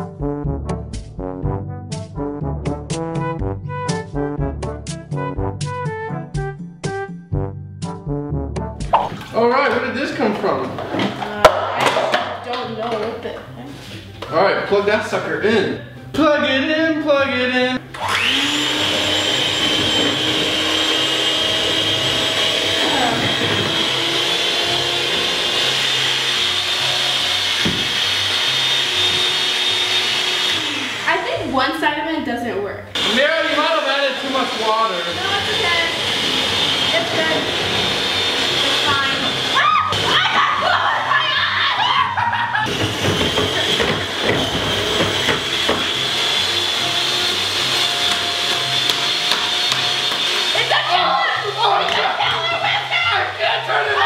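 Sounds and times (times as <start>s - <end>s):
beaters churning liquid: 8.8s - 13.0s, 17.9s - 31.4s, 33.0s - 41.7s, 42.6s - 54.0s
electric hand mixer whisking: 17.3s - 32.1s, 32.9s - 54.0s.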